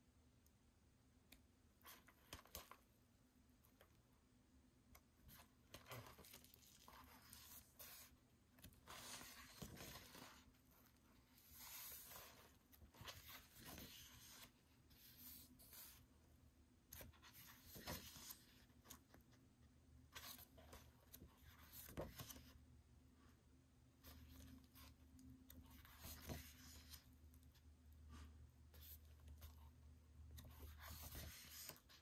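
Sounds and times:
pages being turned: 0:05.3 - 0:16.0, 0:17.0 - 0:19.1, 0:20.2 - 0:22.5, 0:30.4 - 0:32.0.

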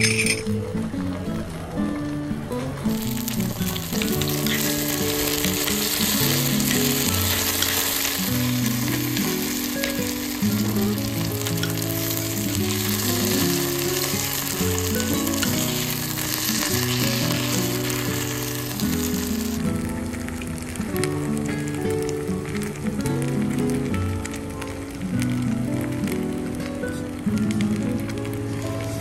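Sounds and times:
background music: 0:00.0 - 0:29.0
rice sizzling in hot bowl: 0:00.0 - 0:29.0.

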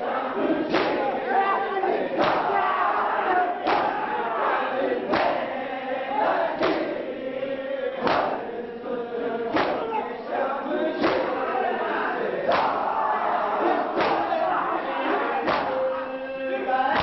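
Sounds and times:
men chanting in unison: 0:00.0 - 0:17.0
collective chest-beating strikes: 0:00.7 - 0:01.2, 0:02.1 - 0:02.6, 0:03.6 - 0:04.2, 0:06.6 - 0:06.9, 0:09.5 - 0:10.0, 0:11.0 - 0:11.4, 0:12.5 - 0:13.0, 0:13.8 - 0:14.4, 0:15.3 - 0:15.8.

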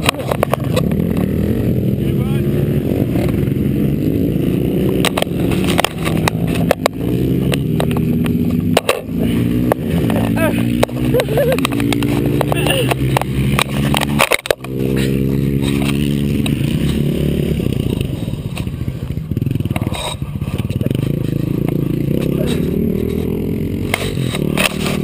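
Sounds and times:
dirt bike engine running: 0:00.0 - 0:25.0
scraping and knocking on camera: 0:05.0 - 0:17.0.

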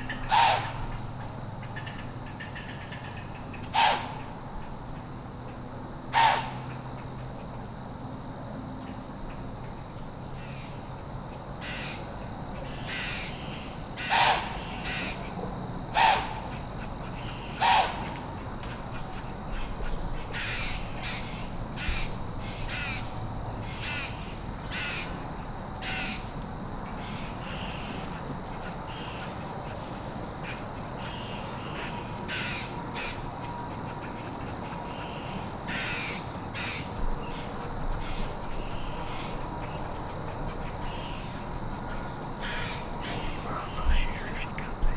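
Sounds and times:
crows cawing: 0:00.0 - 0:01.0, 0:01.6 - 0:04.4, 0:06.1 - 0:06.8, 0:11.6 - 0:12.0, 0:12.6 - 0:25.2, 0:25.8 - 0:26.3, 0:27.0 - 0:44.6.

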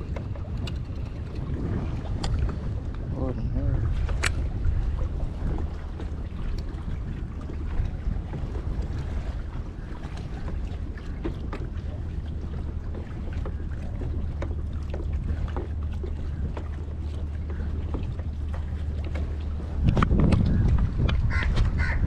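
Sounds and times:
faint clicks and ticks: 0:00.0 - 0:01.5
wind rumble on microphone: 0:00.0 - 0:22.0.

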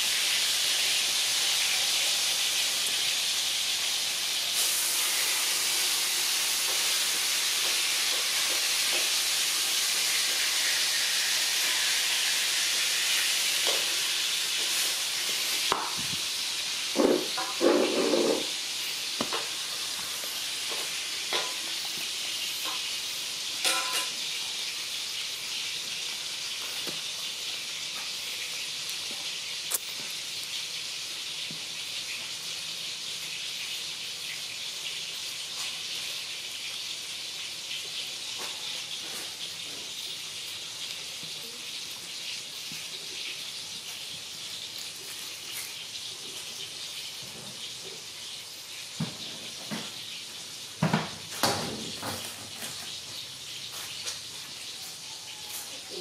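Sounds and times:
steady high hiss: 0:00.0 - 0:38.2.

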